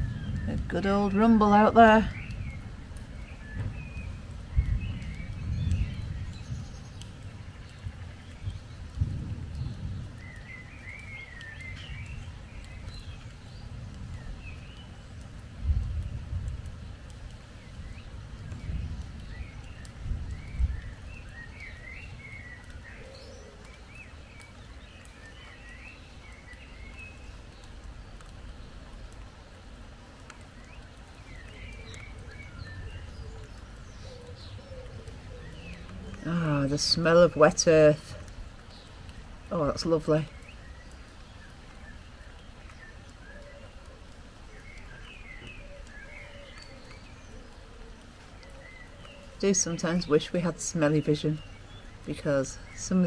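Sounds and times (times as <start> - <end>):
thunder rumble: 0.0 - 23.4, 30.1 - 43.6
birds chirping: 0.0 - 53.0
raindrops ticking: 0.0 - 53.0
songbird warbling: 30.6 - 53.0.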